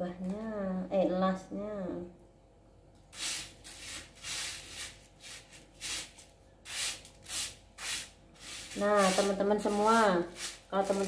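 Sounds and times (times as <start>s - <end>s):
rice grains swishing in tray: 3.2s - 11.0s.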